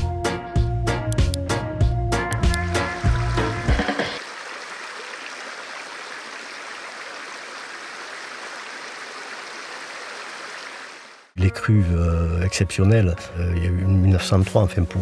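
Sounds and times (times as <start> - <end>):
river water rushing: 4.2 - 11.3.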